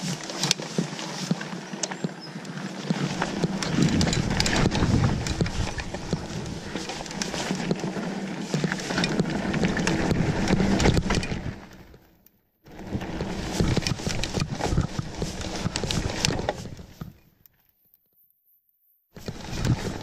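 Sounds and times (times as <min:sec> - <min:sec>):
bike tyres on dirt: 0:00.0 - 0:18.2, 0:19.2 - 0:20.0
bike chain and frame clattering: 0:02.8 - 0:11.6.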